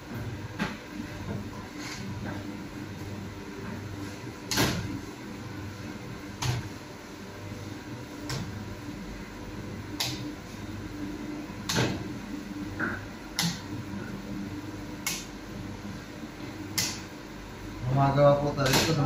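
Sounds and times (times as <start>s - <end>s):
low machine hum: 0.0s - 19.0s.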